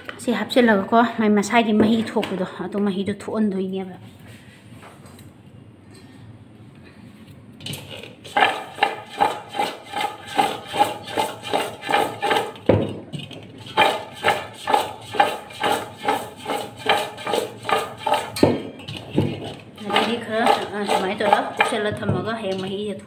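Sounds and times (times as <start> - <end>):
fruit slices tossed in steel pot: 7.8 - 22.6.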